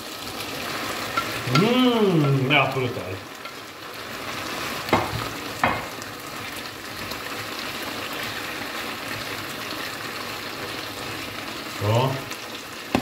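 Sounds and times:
food sizzling in a frying pan: 0.0 - 13.0
wooden spatula stirring: 1.0 - 5.4.

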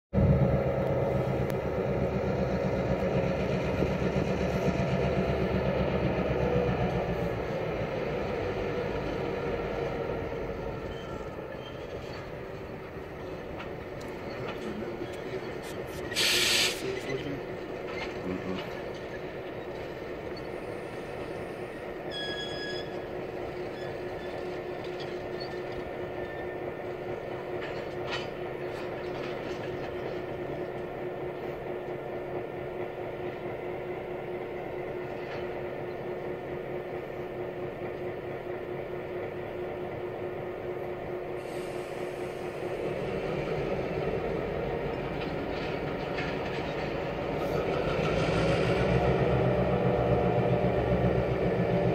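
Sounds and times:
diesel locomotive engines droning: 0.1 - 51.9
wheels rumbling on rail: 0.1 - 51.9
high squeal: 10.6 - 12.4, 19.6 - 26.6.

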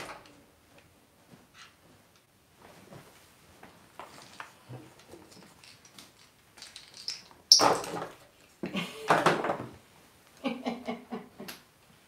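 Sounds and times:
plastic toys clattering in drawer: 4.1 - 8.2.

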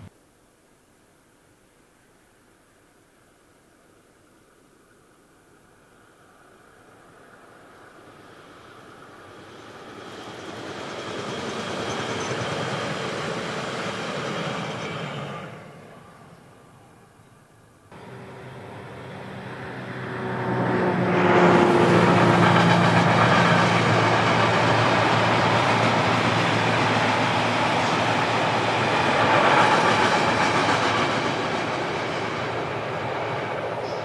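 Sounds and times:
train wheels rolling on rails: 6.7 - 16.9, 17.9 - 34.0.

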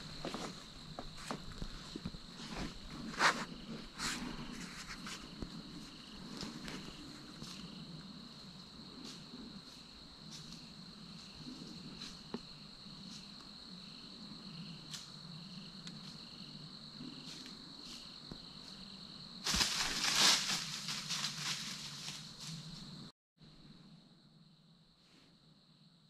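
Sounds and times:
night insects trilling: 0.0 - 26.0
deer walking on dry leaves: 19.4 - 22.9.

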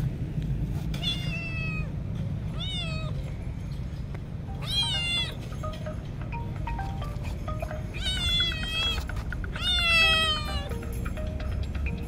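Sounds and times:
kitten meowing: 1.0 - 1.9, 2.5 - 3.2, 4.5 - 5.4, 7.9 - 9.0.

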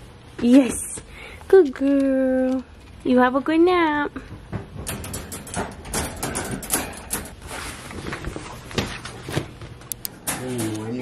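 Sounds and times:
metal clinks and rattles: 4.8 - 7.4
wire crate door latching: 4.8 - 7.4.

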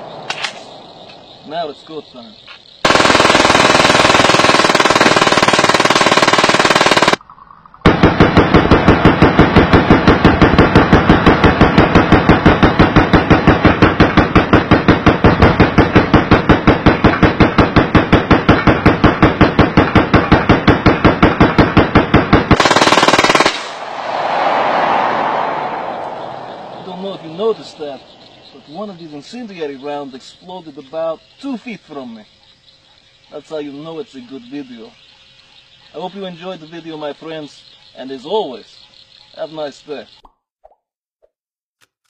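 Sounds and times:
pistol firing rapid shots: 2.8 - 7.2, 7.9 - 23.8.

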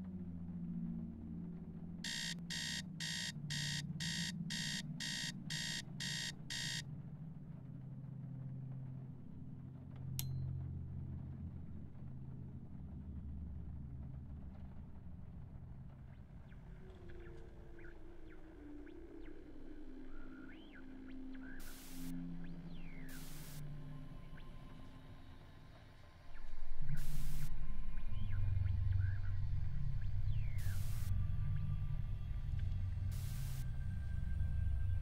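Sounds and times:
alarm clock electronic beeps: 2.0 - 6.8
low musical drone: 16.5 - 35.0.

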